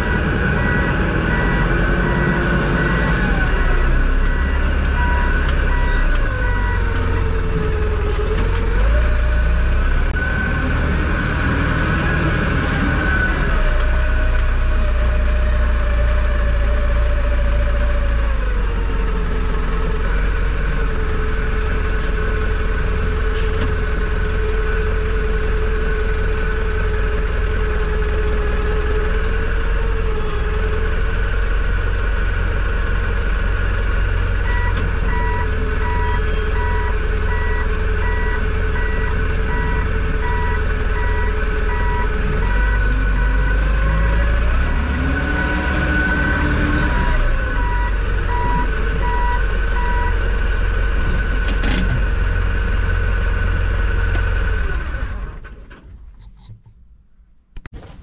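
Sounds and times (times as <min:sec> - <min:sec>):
reversing alarm beeping: 0:00.0 - 0:06.9, 0:34.4 - 0:43.5, 0:46.8 - 0:51.0.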